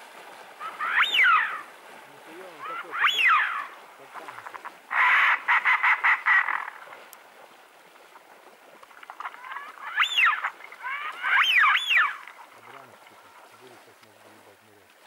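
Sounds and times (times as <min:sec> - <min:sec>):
whistled duck calls: 0:00.6 - 0:01.7, 0:02.4 - 0:03.8, 0:04.6 - 0:06.8, 0:09.4 - 0:12.3
ducks quacking: 0:00.6 - 0:06.9.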